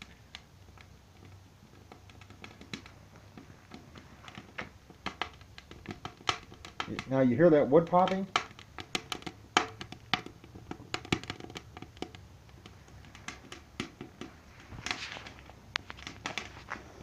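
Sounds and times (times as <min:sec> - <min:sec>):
wood fire crackling and popping: 0:00.0 - 0:17.0.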